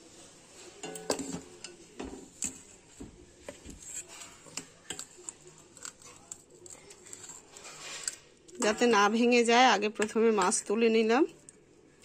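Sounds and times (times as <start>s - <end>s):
metal spoon clinking on metal bowl: 0.8s - 2.6s, 3.9s - 9.2s.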